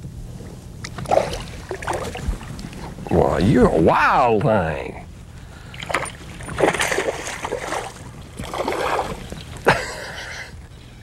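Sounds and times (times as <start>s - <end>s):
fish splashing at water surface: 5.8s - 9.7s.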